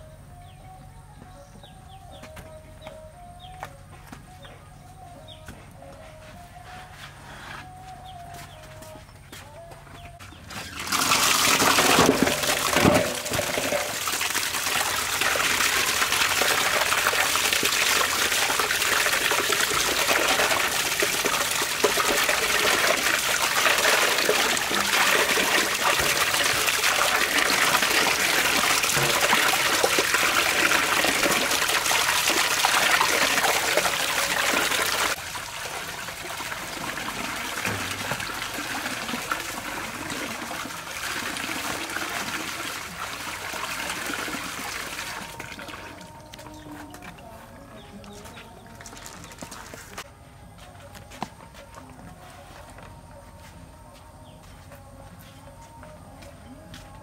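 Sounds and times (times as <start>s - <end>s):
tap water pouring into metal basin: 10.5s - 46.4s
water splashing: 10.6s - 46.6s.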